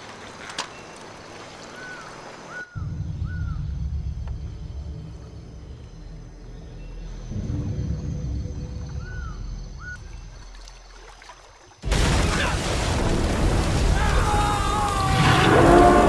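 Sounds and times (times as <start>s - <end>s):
flowing water hiss: 0.0s - 2.8s
bird calling: 0.4s - 3.8s, 8.6s - 10.7s
deep low rumble: 2.8s - 10.4s.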